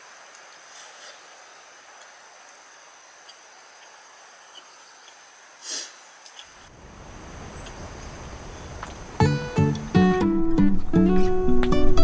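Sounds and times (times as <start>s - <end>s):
insects chirring: 0.0s - 11.1s
breathy puff: 5.6s - 6.0s.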